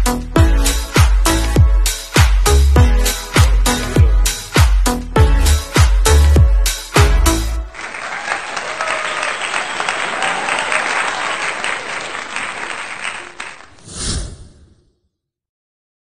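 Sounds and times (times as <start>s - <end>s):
applause: 7.6s - 13.8s.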